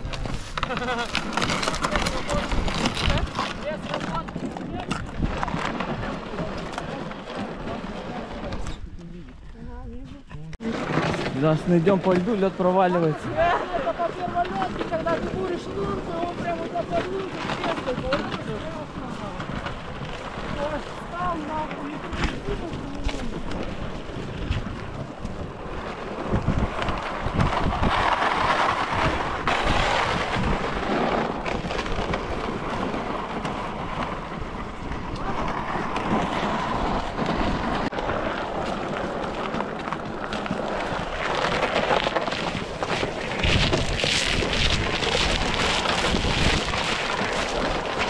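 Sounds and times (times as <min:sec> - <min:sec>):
short crackling noises: 0:00.0 - 0:48.0
wind buffeting microphone: 0:00.0 - 0:48.0.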